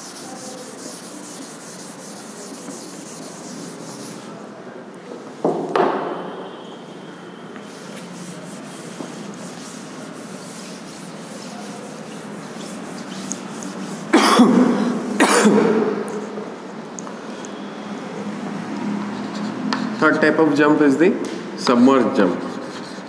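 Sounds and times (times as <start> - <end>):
cloth rubbing on chalkboard: 0.0 - 4.4, 7.6 - 15.2, 19.0 - 20.4, 22.1 - 23.0.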